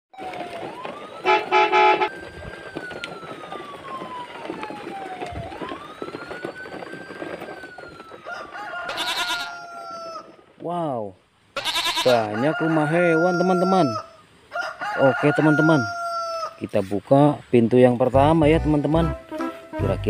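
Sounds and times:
wailing siren: 0:00.1 - 0:10.3, 0:12.4 - 0:16.6
horn toots: 0:01.2 - 0:02.2.

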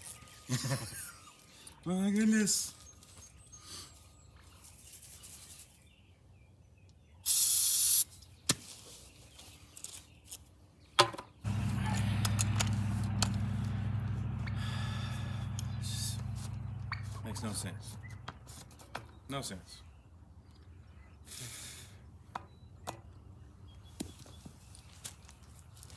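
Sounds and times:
aerosol spray hiss: 0:07.3 - 0:08.0
sharp clicks: 0:11.5 - 0:14.6
steady low hum: 0:11.5 - 0:18.7.

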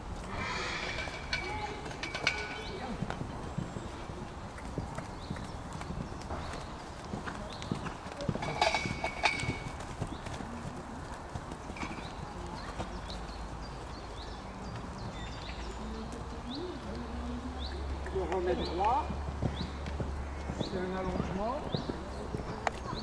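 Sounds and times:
horse hoofbeats on sand: 0:01.0 - 0:23.0.

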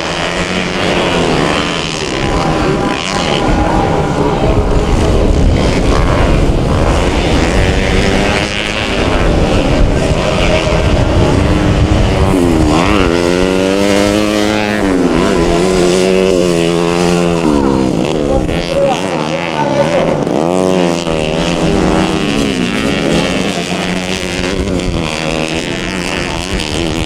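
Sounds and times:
motorcycle engine revving: 0:00.0 - 0:27.0
motorcycle engines at full throttle: 0:00.0 - 0:27.0.

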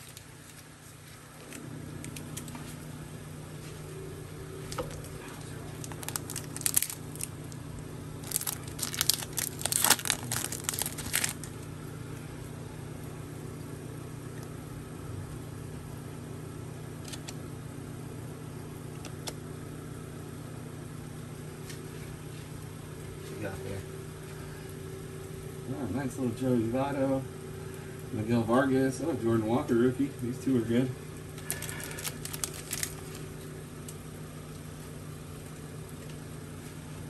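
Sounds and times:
foil wrapper crinkling and tearing: 0:00.0 - 0:00.7, 0:04.7 - 0:11.6, 0:31.4 - 0:33.4
steady low hum: 0:00.0 - 0:37.0.

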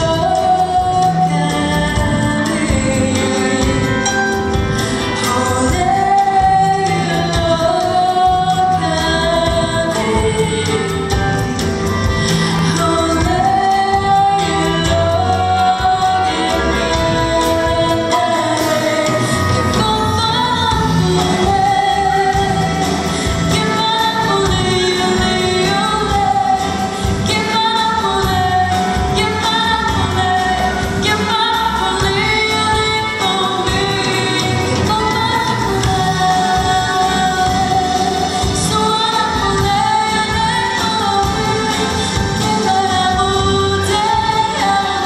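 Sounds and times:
live band with drums: 0:00.0 - 0:45.0
woman singing into a microphone: 0:00.0 - 0:45.0.

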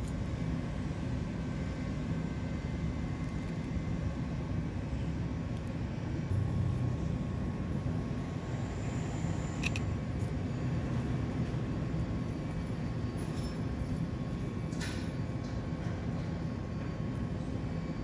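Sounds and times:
steady low rumble: 0:03.0 - 0:13.1.

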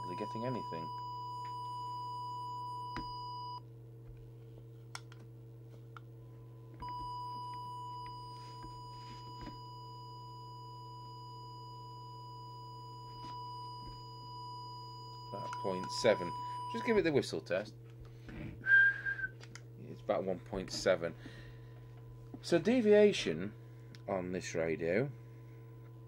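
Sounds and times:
low hum: 0:00.0 - 0:24.1
steady test tone: 0:06.8 - 0:17.2.

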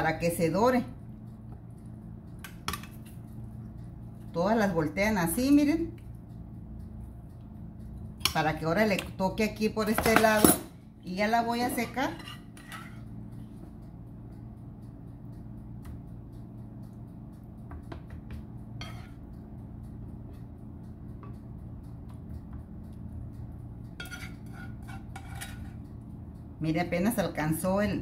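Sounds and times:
steady low hum: 0:00.0 - 0:28.0
spoon scraping a frying pan: 0:11.8 - 0:13.1, 0:18.8 - 0:19.2, 0:24.0 - 0:25.8.

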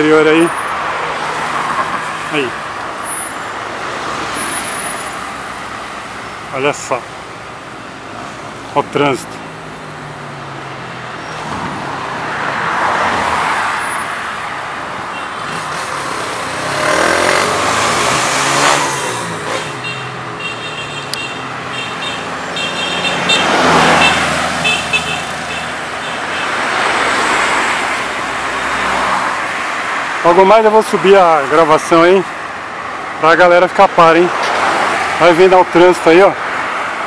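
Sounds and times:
vehicles passing: 0:00.0 - 0:37.0.

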